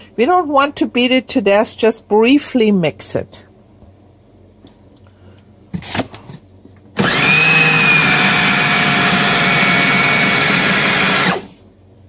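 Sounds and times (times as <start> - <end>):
food processor motor whining: 7.0 - 11.6.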